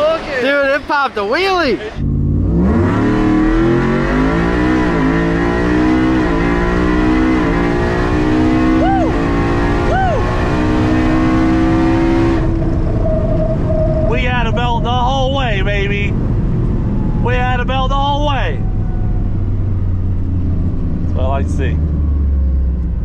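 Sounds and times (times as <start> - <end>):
truck engine at full throttle: 1.6 - 23.0.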